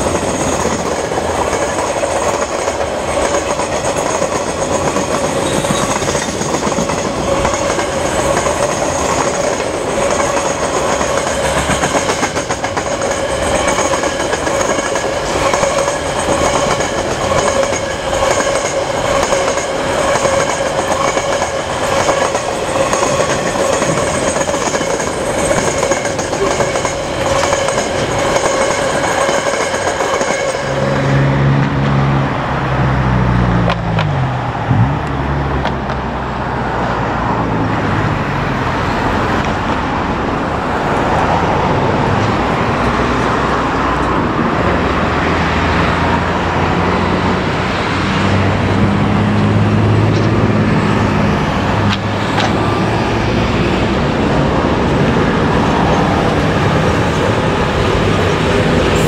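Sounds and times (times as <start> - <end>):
train wheel squeal: 0.0 - 31.2
diesel locomotive engine: 0.0 - 59.0
wheels rumbling on track: 0.0 - 59.0.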